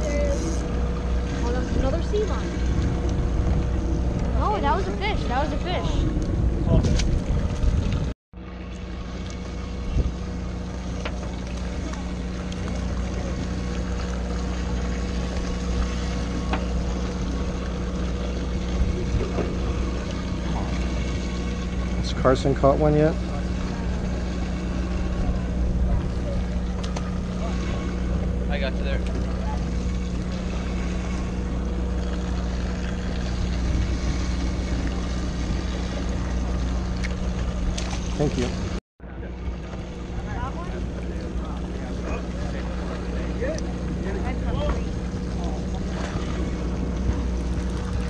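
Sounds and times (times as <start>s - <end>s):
boat engine idling: 0.0s - 48.0s
water noise: 0.0s - 48.0s
wind: 0.0s - 48.0s.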